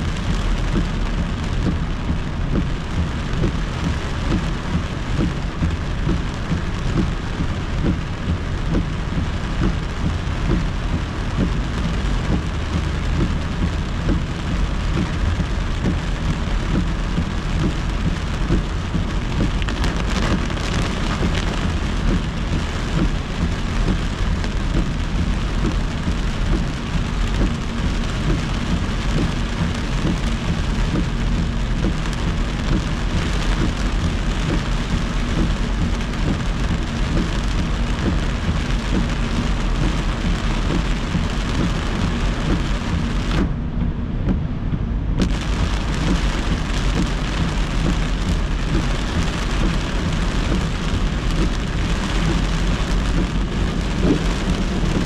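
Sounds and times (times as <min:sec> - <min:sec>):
heavy rain on car roof: 0:00.0 - 0:55.0
road and tyre noise: 0:00.0 - 0:55.0.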